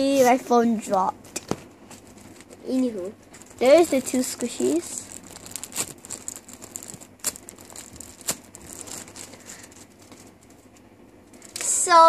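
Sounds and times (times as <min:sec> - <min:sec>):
plastic bag crinkling: 0:01.9 - 0:10.7, 0:11.4 - 0:11.8.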